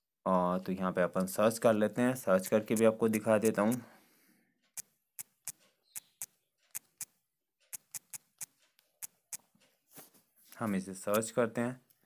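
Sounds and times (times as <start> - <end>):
smartphone keyboard clicks: 2.6 - 3.8, 4.8 - 7.1, 7.7 - 9.5.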